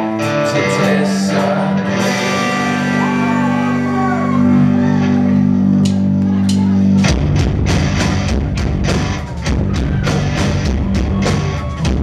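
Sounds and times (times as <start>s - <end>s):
bass guitar: 0.0s - 12.0s
electric guitars: 0.0s - 12.0s
drum kit driving beat: 5.8s - 12.0s.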